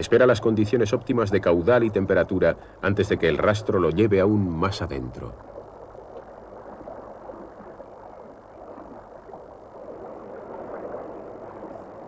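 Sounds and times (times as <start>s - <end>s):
muffled river water underwater: 0.0s - 12.0s.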